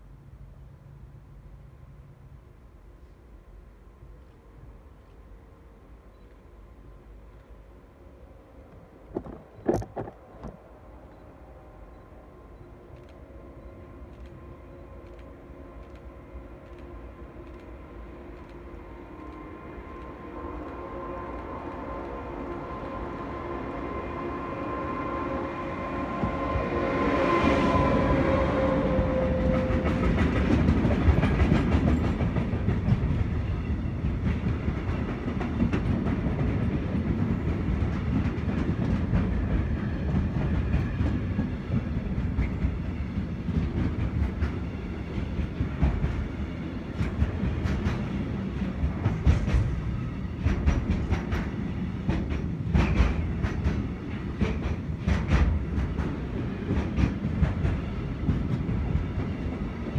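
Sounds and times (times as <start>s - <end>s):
electric locomotive whine: 0.0s - 59.9s
train wagons rumbling past: 7.3s - 59.9s.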